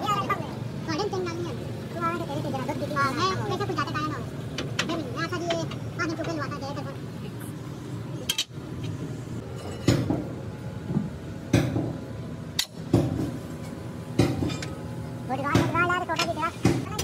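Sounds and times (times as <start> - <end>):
hammer striking metal: 9.6 - 10.3.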